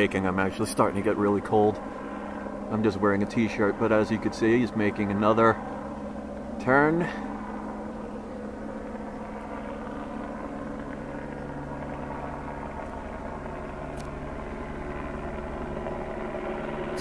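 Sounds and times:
helicopter rotor and engine drone: 0.0s - 17.0s.

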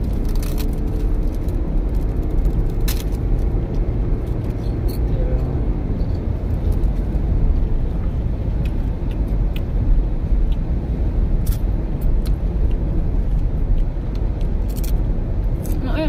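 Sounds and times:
raindrops ticking on windscreen: 0.0s - 4.6s
car driving on wet road: 0.0s - 16.0s.

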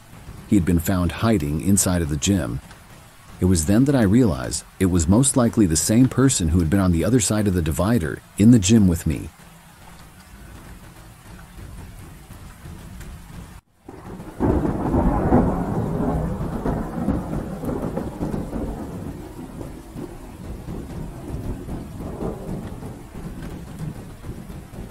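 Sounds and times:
steady rain: 0.0s - 24.9s
thunderclap with long rumble: 10.3s - 24.9s.

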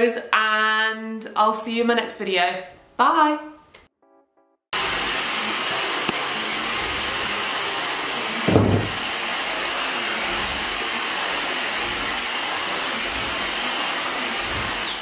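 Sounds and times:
vacuum cleaner running: 4.8s - 15.0s
low thud: 8.5s - 9.0s.

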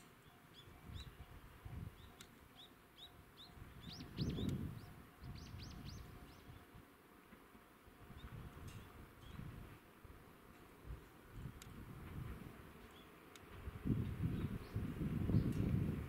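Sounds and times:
small bird chirping: 0.1s - 6.7s.

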